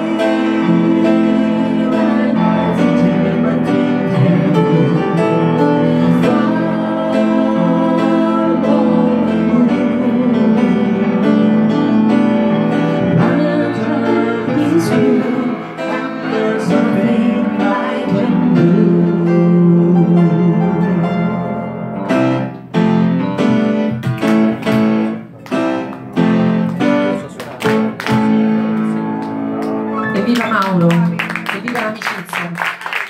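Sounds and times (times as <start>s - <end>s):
person singing: 0.0s - 11.6s, 13.0s - 21.6s
electric keyboard chords: 0.0s - 31.8s.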